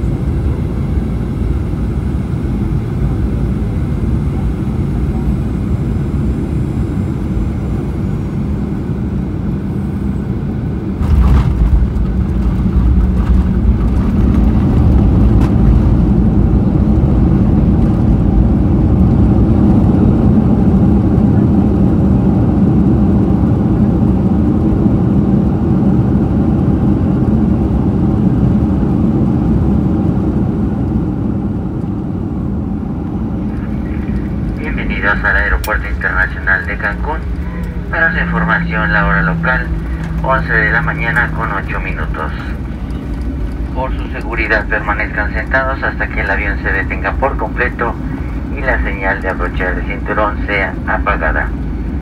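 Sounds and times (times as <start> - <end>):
engine and airflow rumble: 0.0 - 52.0
landing rollout rumble: 10.8 - 19.1.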